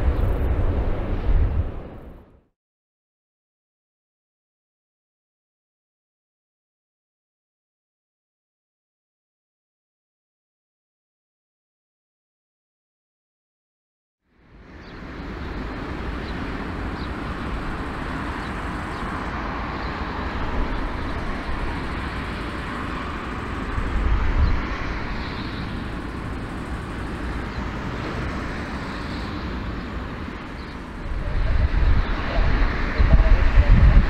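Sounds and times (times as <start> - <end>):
jet engines rumble and hiss: 0.0 - 2.2, 14.4 - 34.0.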